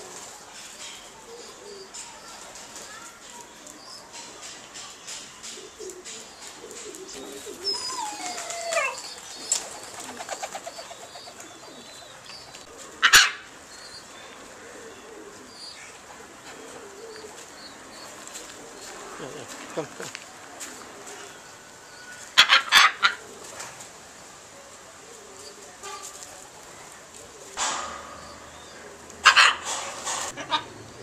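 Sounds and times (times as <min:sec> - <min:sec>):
small birds chirping: 0:00.3 - 0:12.8, 0:13.6 - 0:20.1.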